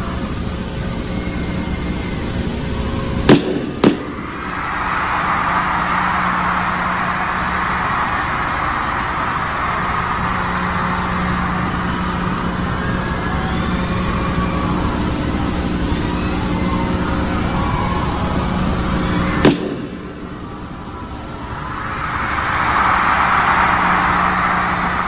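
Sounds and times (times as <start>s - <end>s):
crowd screaming and cheering: 0.0s - 25.0s
sharp cracks: 3.3s - 5.1s, 19.4s - 20.3s.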